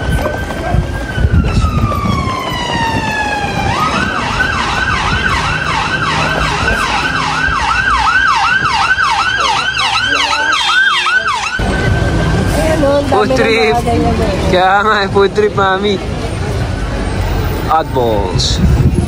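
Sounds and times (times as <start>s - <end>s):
emergency vehicle siren: 0.0s - 14.5s
low traffic noise: 0.0s - 19.0s.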